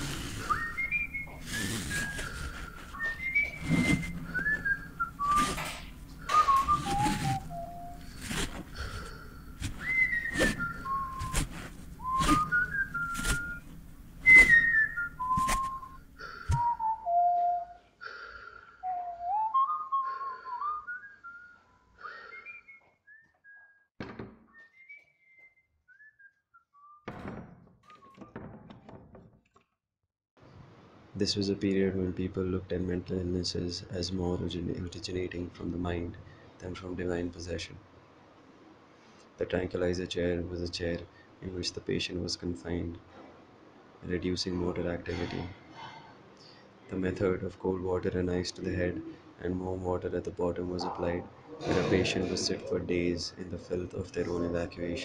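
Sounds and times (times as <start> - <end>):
person whistling a tune: 0.0 - 17.9, 18.8 - 23.9, 24.5 - 27.0
irregular knocks: 24.0 - 24.5, 27.0 - 29.5.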